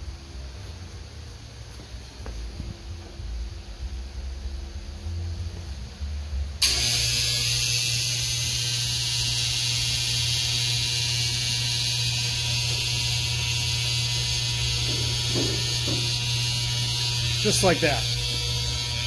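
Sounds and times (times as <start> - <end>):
electric motor humming: 6.6 - 19.0.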